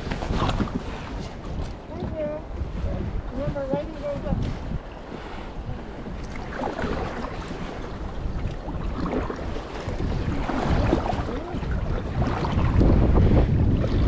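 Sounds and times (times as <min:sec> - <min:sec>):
water lapping and splashing: 0:00.0 - 0:14.0
wind rumbling on microphone: 0:00.0 - 0:14.0.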